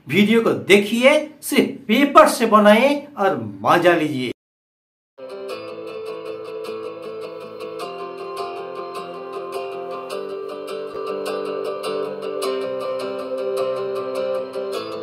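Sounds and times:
acoustic guitar tune: 0:05.2 - 0:15.0.

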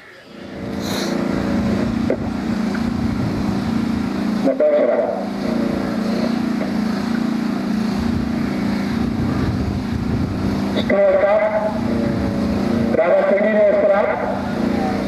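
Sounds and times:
engine idling: 0:00.2 - 0:15.0
wind on microphone: 0:00.5 - 0:04.2, 0:07.9 - 0:13.0.

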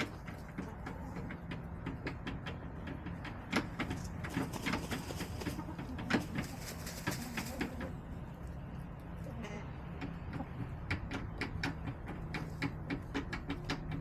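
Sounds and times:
hens clucking: 0:00.0 - 0:14.0
beaks and feet tapping: 0:09.6 - 0:14.0.

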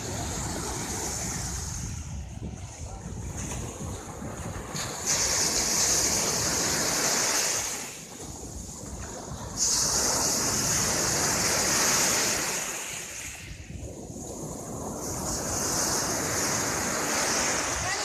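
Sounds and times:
surf washing up sand: 0:00.0 - 0:18.0.

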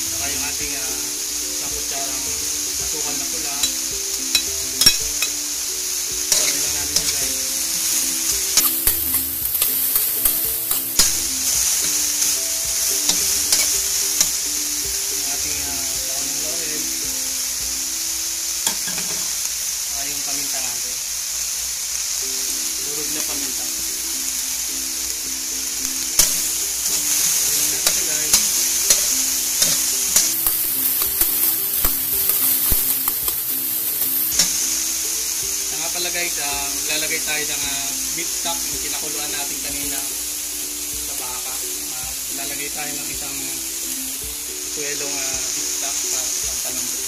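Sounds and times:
meat sizzling in a wok: 0:00.0 - 0:47.0
metal spoon scraping a pan: 0:07.8 - 0:14.4, 0:26.2 - 0:34.8.

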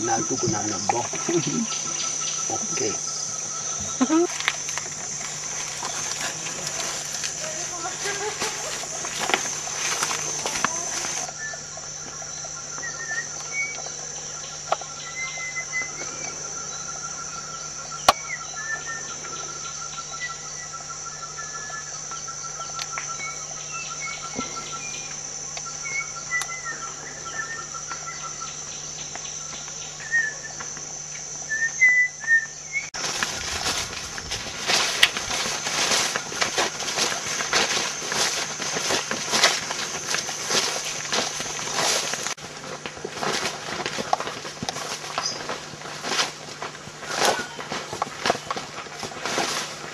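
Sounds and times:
bird trilling: 0:00.0 - 0:30.6
birds whistling: 0:00.0 - 0:30.8, 0:31.4 - 0:42.3, 0:45.1 - 0:46.2, 0:47.0 - 0:49.8
steady high buzz: 0:00.0 - 0:49.9
rustling and handling noise: 0:04.3 - 0:11.3, 0:33.0 - 0:49.9.

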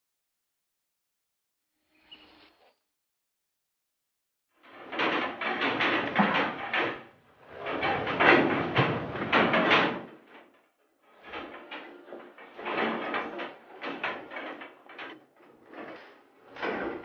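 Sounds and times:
cows rattling metal feed barrier: 0:04.9 - 0:10.4, 0:11.2 - 0:15.2.

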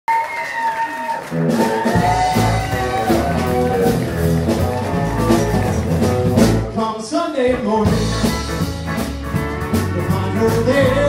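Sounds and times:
country band playing: 0:01.2 - 0:11.0
sliding guitar line: 0:01.3 - 0:06.9.

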